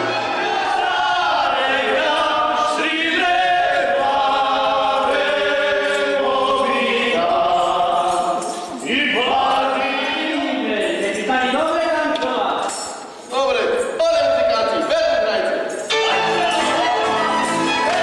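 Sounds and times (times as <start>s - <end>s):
men singing in chorus: 0.0s - 11.5s.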